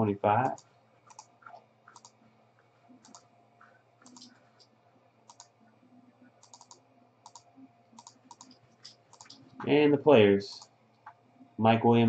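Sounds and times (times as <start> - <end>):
computer mouse and keyboard clicks: 0.4 - 5.6, 6.4 - 9.8, 10.5 - 11.2.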